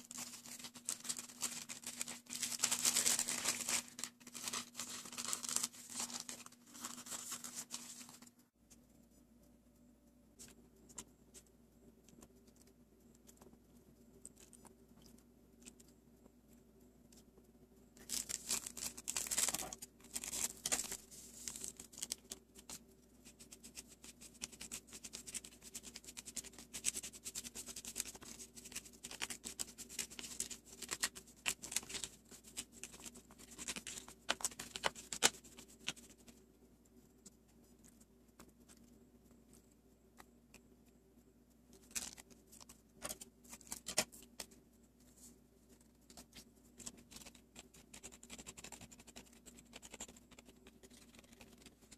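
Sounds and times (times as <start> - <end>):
candy packet crinkling: 0.0 - 8.3, 18.0 - 22.8, 24.3 - 36.3
faint steady hum: 0.0 - 51.9.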